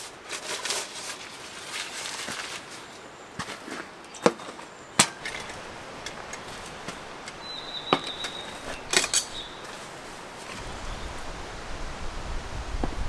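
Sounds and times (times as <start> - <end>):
low wind rumble: 5.2 - 13.0.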